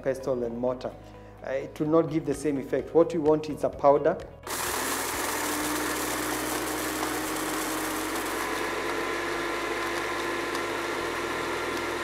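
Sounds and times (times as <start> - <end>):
blender grinding spices: 4.4 - 12.0.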